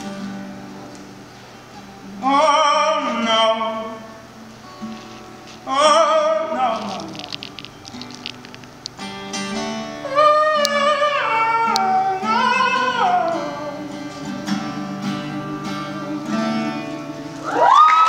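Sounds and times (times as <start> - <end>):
acoustic guitar: 0.0 - 18.0
high wordless singing: 5.6 - 7.3, 10.0 - 18.0
audience whooping and cheering: 17.4 - 18.0.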